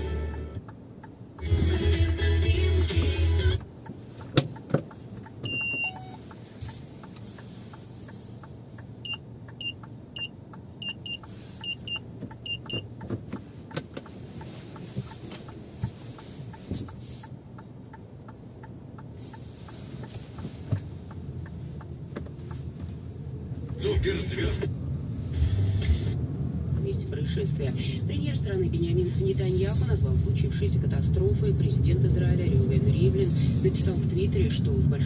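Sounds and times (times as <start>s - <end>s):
car cabin rumble: 0.0s - 35.0s
electronic beeps: 5.4s - 6.2s, 9.0s - 12.9s.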